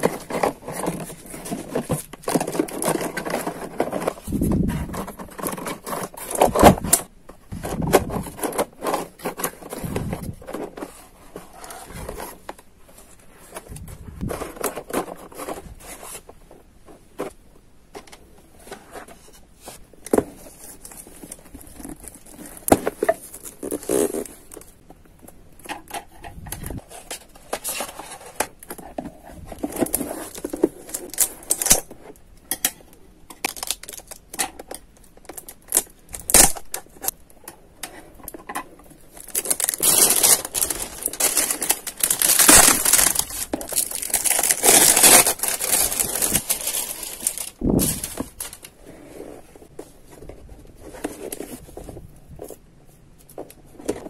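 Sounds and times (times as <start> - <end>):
paper crinkling and tearing: 39.2 - 48.7.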